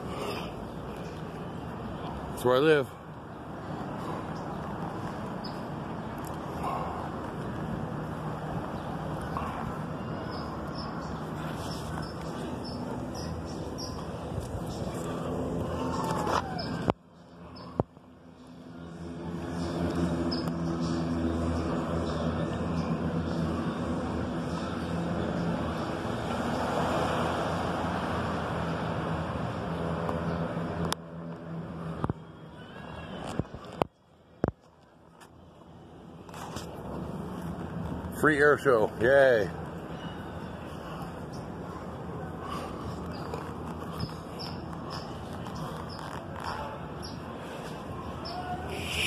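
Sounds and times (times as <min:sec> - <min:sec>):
rushing noise: 0:48.6 - 0:49.0.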